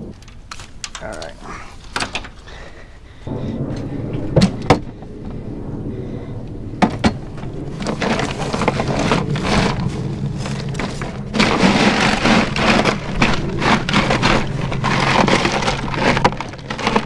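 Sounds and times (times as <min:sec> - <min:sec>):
ice rattling and crunching: 0:06.8 - 0:17.0.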